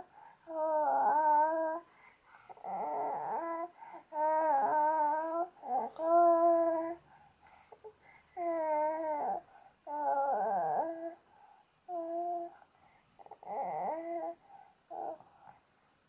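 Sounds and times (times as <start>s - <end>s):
baby crying: 2.6s - 7.0s.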